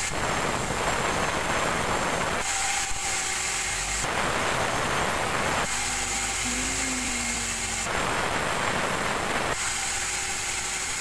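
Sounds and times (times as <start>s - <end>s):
band saw cutting log: 3.0s - 8.8s.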